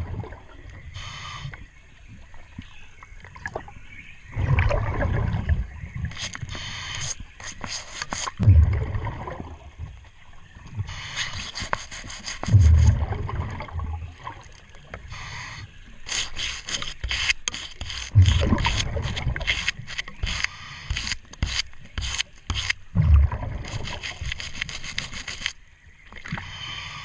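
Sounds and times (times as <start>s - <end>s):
bubbling rumble of exhaled breath: 0.0s - 1.6s, 4.3s - 7.1s, 8.4s - 10.0s, 12.4s - 15.8s, 22.9s - 24.0s
brush scratching underwater: 6.1s - 8.4s, 10.8s - 13.2s, 15.1s - 22.8s, 23.4s - 25.6s.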